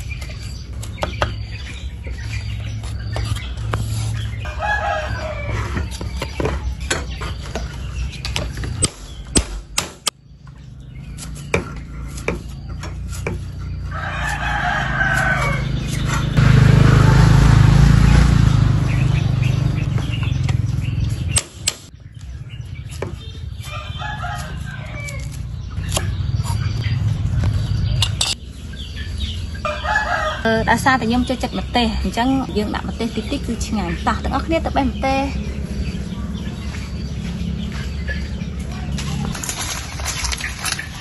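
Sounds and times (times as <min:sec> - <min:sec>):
rooster crowing: 0:04.4 - 0:06.1, 0:13.9 - 0:15.8, 0:23.7 - 0:25.4, 0:29.6 - 0:30.5
knife chopping on wooden block: 0:11.5 - 0:13.4
loud low rumble: 0:15.0 - 0:21.4, 0:25.4 - 0:28.3.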